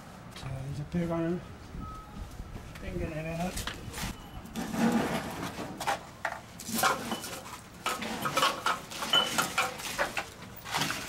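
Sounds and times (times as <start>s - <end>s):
metal tools clinking on pipes: 6.7s - 9.8s.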